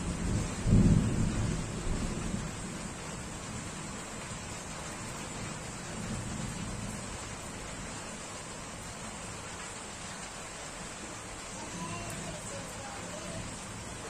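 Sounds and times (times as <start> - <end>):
thunder rolling: 0.0 - 3.8
steady rain: 0.0 - 14.0.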